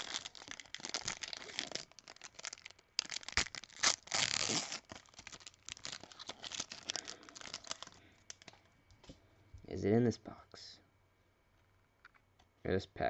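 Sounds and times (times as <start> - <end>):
wrapper tearing: 0.0 - 8.5
wrapper crinkling: 0.0 - 8.6.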